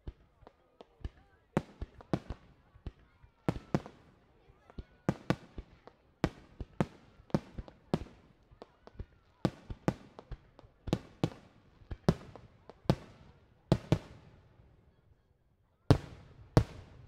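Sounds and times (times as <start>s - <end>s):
fireworks bursting with sharp bangs: 0.0s - 14.9s, 15.9s - 17.0s.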